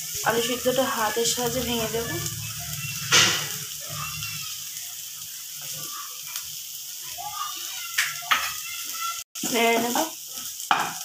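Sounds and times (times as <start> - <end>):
food sizzling in a pan: 0.0 - 11.0
wooden spatula knocking on pan: 8.0 - 8.6, 10.7 - 11.0.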